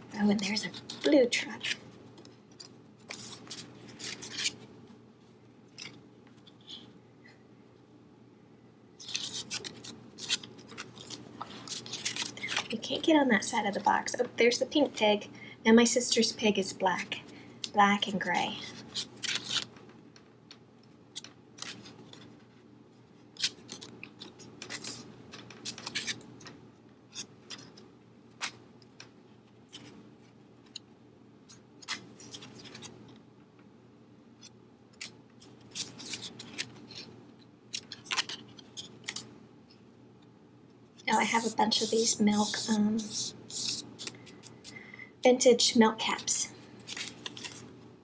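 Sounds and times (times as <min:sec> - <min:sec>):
paper cards rustling and tapping: 0:09.0 - 0:12.9, 0:18.3 - 0:22.6, 0:23.2 - 0:30.0, 0:35.0 - 0:37.1, 0:37.7 - 0:39.3, 0:46.1 - 0:47.7.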